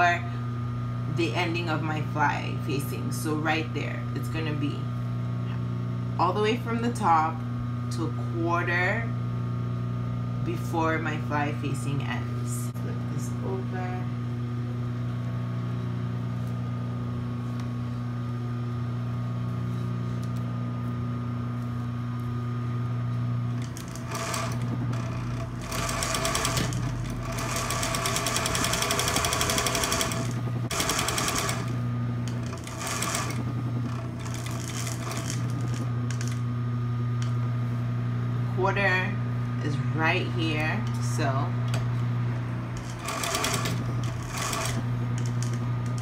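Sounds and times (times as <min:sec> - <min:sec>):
sewing machine motor hum: 0:23.4 - 0:36.6, 0:41.7 - 0:46.0
sewing machine stitching: 0:23.6 - 0:31.7, 0:32.3 - 0:36.4, 0:42.8 - 0:46.0.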